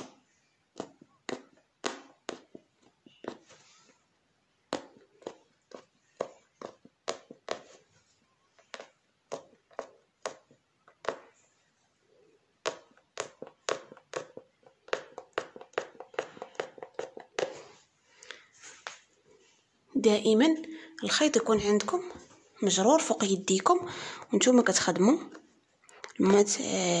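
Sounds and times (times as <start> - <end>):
punch needle popping through fabric: 0.8 - 3.4.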